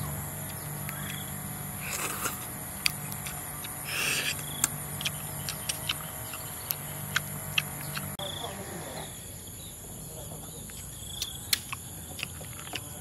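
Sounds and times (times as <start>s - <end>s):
person slurping snails: 1.8s - 8.2s
clicks of mouth and shells: 10.7s - 12.9s.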